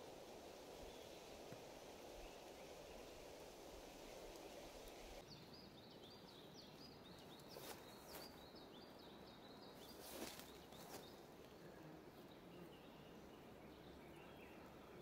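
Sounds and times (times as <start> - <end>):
small bird chirping: 2.2 - 11.2.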